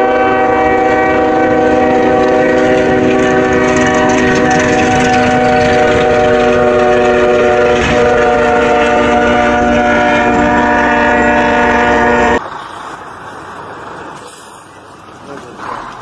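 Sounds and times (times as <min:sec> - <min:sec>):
locomotive air horn: 0:00.0 - 0:12.4
passing train rumble: 0:00.0 - 0:16.0
truck rumble: 0:00.0 - 0:16.0.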